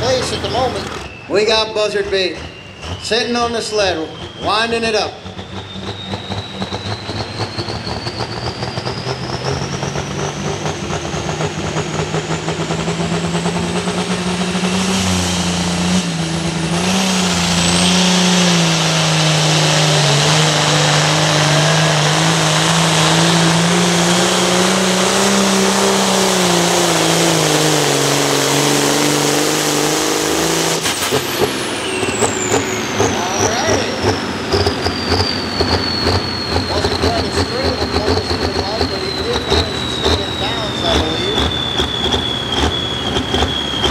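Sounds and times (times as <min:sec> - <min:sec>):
high turbo whine: 0:00.0 - 0:43.9
tractor diesel engine at full throttle: 0:00.0 - 0:43.9.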